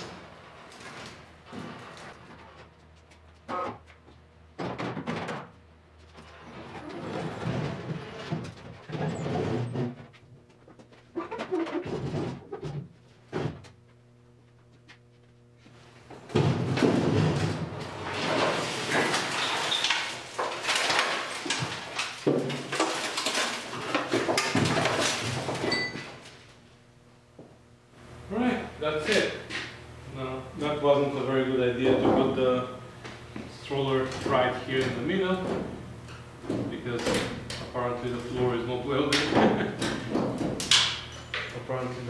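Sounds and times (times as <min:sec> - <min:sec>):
wooden frame rolling over concrete: 0:06.1 - 0:10.2, 0:16.4 - 0:25.6.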